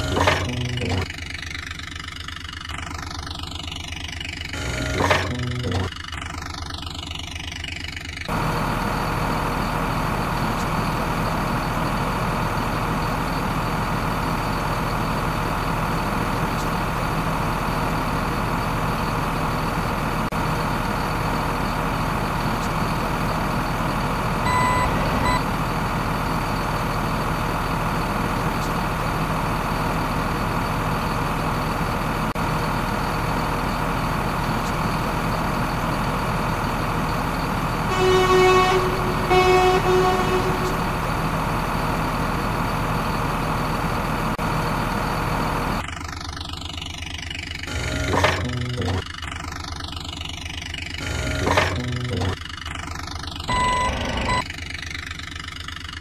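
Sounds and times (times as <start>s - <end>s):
loud horn honks: 0.0s - 1.1s, 37.9s - 41.1s
truck engine running: 0.0s - 56.0s
short beep: 24.5s - 25.4s, 53.5s - 54.4s.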